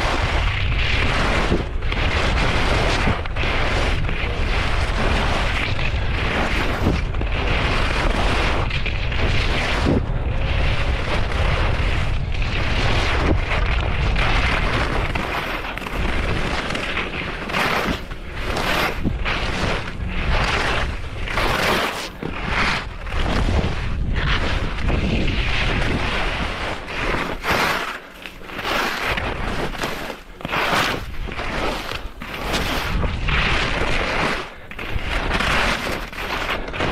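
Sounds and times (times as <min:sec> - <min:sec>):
skis scraping on hard snow: 0:00.0 - 0:36.9
wind rumbling on microphone: 0:00.0 - 0:36.9.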